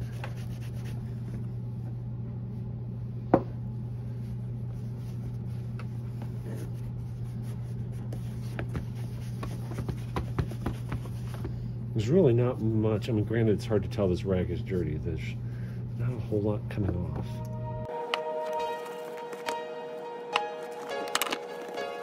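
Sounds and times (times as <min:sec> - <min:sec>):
rag rubbing on leather shoe: 0:00.0 - 0:01.0, 0:06.4 - 0:11.5
steady low hum: 0:00.0 - 0:21.8.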